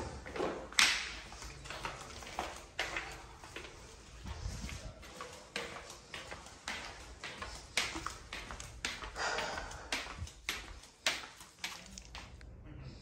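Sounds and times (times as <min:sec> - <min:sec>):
footsteps on hard floor: 0:00.0 - 0:12.4.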